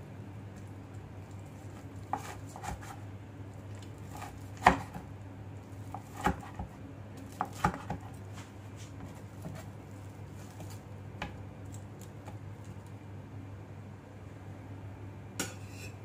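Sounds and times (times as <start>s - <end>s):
knife chopping on cutting board: 2.1s - 3.0s, 4.1s - 5.1s, 5.8s - 8.2s, 9.0s - 9.7s.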